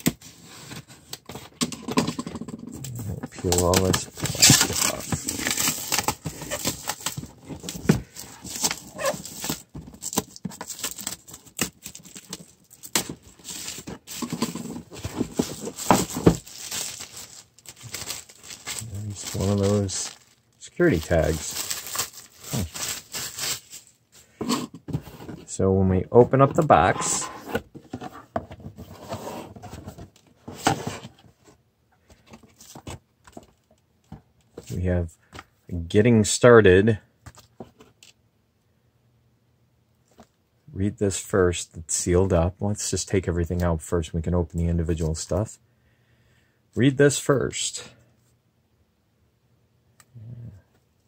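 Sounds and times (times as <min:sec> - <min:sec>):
packaging rustling and clicking: 0:01.1 - 0:24.0
plastic wrap crinkling: 0:03.3 - 0:24.0.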